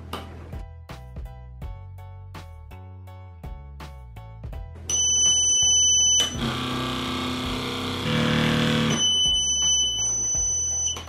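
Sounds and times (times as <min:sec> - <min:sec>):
background music: 0:00.0 - 0:11.0
high steady tone: 0:08.0 - 0:11.0.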